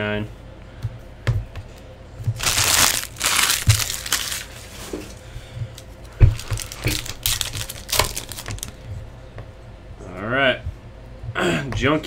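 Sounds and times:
foil wrapper crinkling and tearing: 2.4 - 4.9, 6.3 - 8.8.

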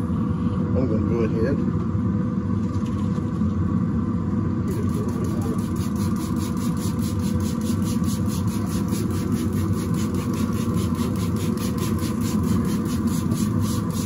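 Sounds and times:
low mechanical rumble and hum: 0.0 - 14.0
pulsing hiss: 4.7 - 14.0.

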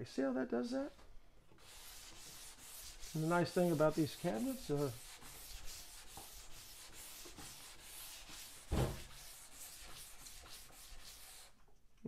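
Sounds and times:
sandpaper rubbing on wood: 1.6 - 11.6
thump: 8.7 - 9.1.

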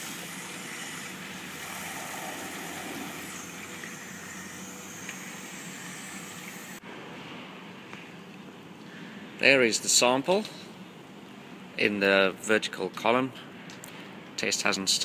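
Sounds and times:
low machine hum: 0.0 - 11.7
rush of flowing water: 1.4 - 4.0.

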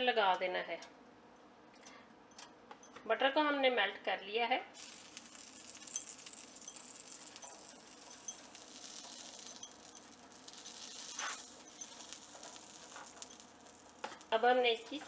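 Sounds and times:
metal spoon scraping: 4.8 - 14.3
butter sizzling on griddle: 4.8 - 15.0.

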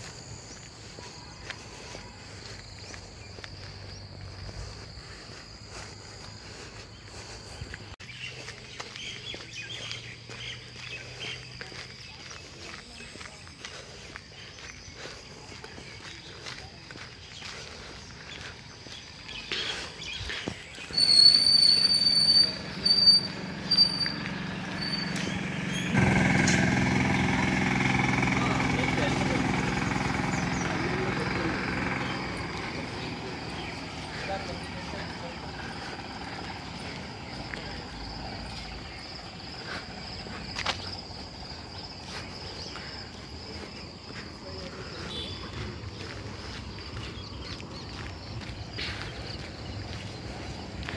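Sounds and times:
insects trilling: 0.0 - 50.9
vehicle engine running: 0.0 - 50.9
loud high-pitched squeal: 20.9 - 27.4.

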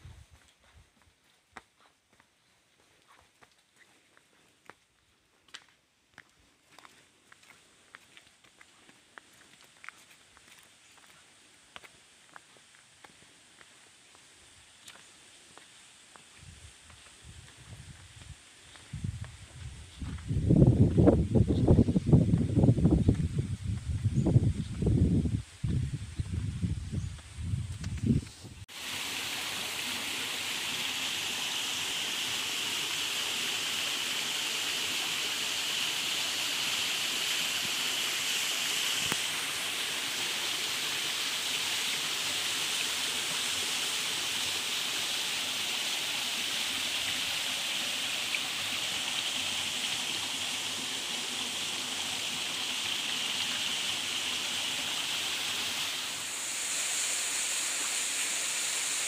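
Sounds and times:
stream and waterfall rushing: 28.7 - 59.0.

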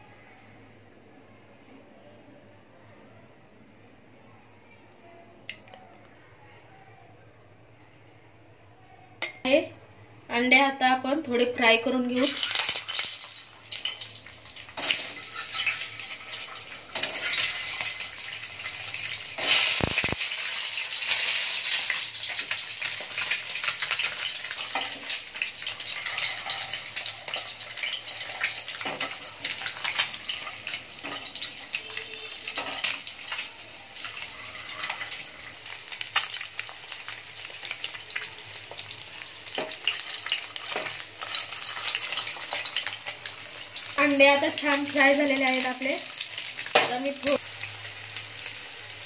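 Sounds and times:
eggs sizzling in hot oil: 12.0 - 49.0
sharp sizzling burst: 12.1 - 49.0.

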